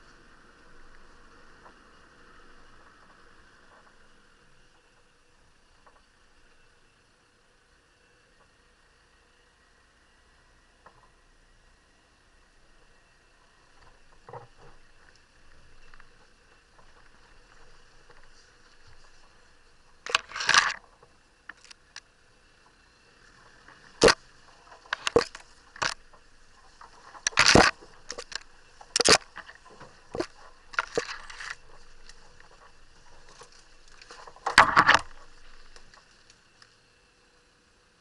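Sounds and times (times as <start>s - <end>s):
branches scraping against camera: 13.8s - 22.1s, 23.3s - 36.7s.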